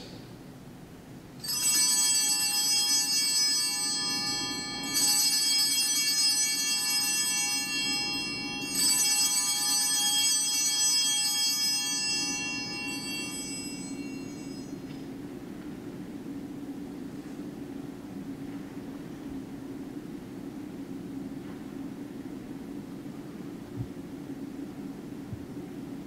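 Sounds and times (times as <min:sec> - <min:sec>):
small altar bells ringing: 0:01.4 - 0:15.5.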